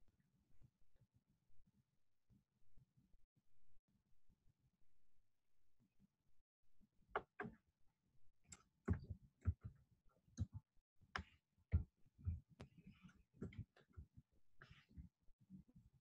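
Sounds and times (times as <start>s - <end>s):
clicks and taps at a computer: 7.1s - 7.7s, 8.5s - 15.1s.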